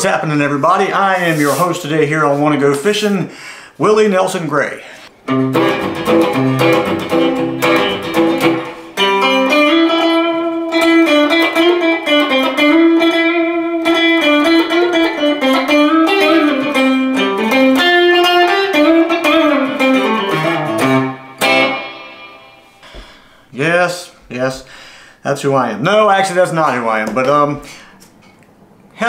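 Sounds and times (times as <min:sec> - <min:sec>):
electric guitar bending melody: 0:05.1 - 0:23.2
electric guitar strumming chords: 0:05.2 - 0:23.1.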